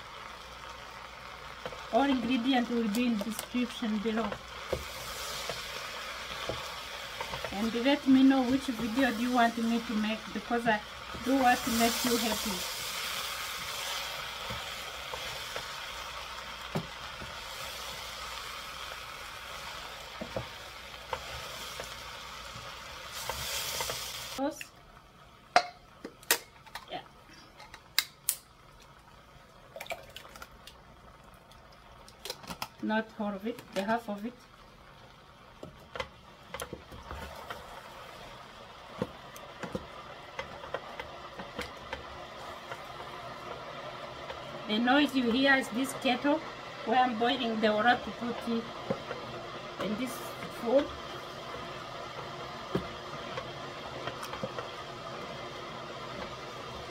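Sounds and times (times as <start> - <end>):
kettle heating water hiss: 0.0 - 56.9
vegetables sizzling in a pot: 0.0 - 56.9
spoon knocking against pot: 25.6 - 25.8.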